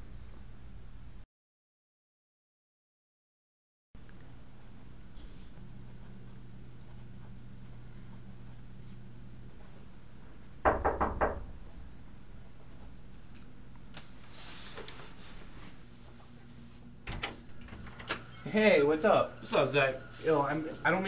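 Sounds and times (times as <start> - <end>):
low room hum: 0.0 - 1.2, 4.0 - 21.0
pencil scratching on paper: 4.6 - 9.0, 11.6 - 13.0
sharp knocks: 10.6 - 11.7.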